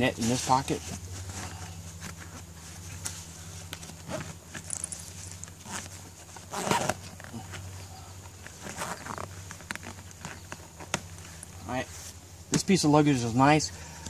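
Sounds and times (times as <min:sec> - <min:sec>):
steady low hum: 0:00.0 - 0:14.0
fabric rustling: 0:08.4 - 0:12.2.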